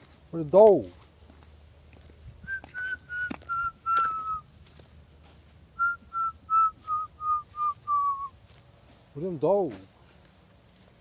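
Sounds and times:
person whistling short notes: 2.5s - 4.4s, 5.8s - 8.4s.

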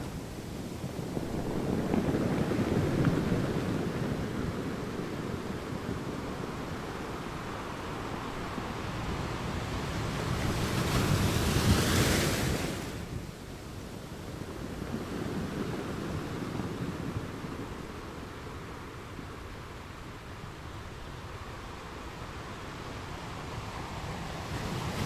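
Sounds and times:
ocean waves breaking: 0.0s - 13.2s, 21.8s - 25.0s.

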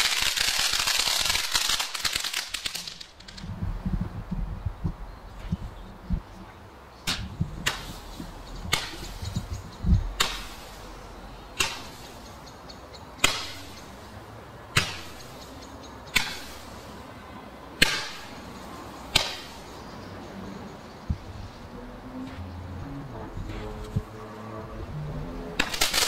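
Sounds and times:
firework shots: 0.0s - 3.5s, 7.0s - 9.4s, 10.0s - 11.0s, 11.6s - 12.2s, 13.2s - 14.1s, 14.7s - 15.5s, 16.1s - 17.0s, 17.8s - 19.8s, 25.6s - 26.0s.

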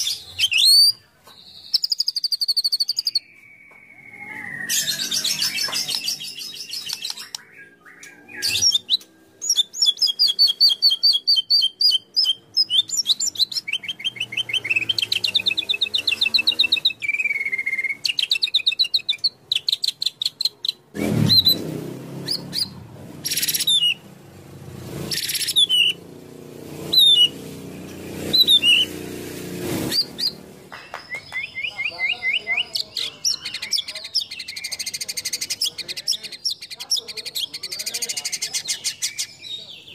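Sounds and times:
songbird trilling and whistling: 0.0s - 24.0s, 25.1s - 26.0s, 26.8s - 27.4s, 28.2s - 29.0s, 29.9s - 39.9s.

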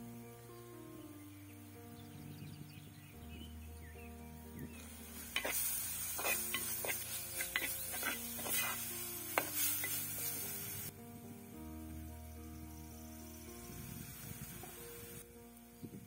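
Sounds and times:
vegetables sizzling in hot oil: 4.7s - 10.9s, 12.5s - 15.8s
wooden spoon scraping pot: 5.3s - 10.1s.

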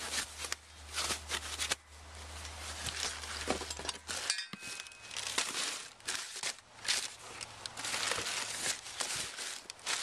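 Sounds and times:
rustling: 0.0s - 10.0s
metal brackets clinking and knocking: 3.6s - 5.1s.

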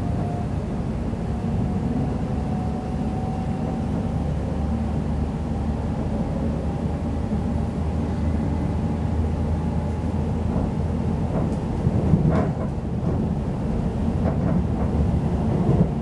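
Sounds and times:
train wheels rumbling on rail: 0.0s - 16.0s
train clatter: 9.8s - 16.0s.

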